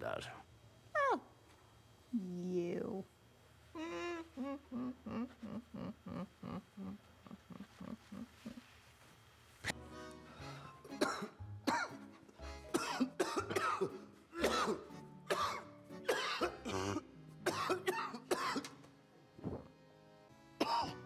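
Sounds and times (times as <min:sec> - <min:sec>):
background music: 0:09.7 - 0:21.0
man coughing: 0:11.0 - 0:11.9, 0:12.7 - 0:18.7, 0:20.6 - 0:21.0.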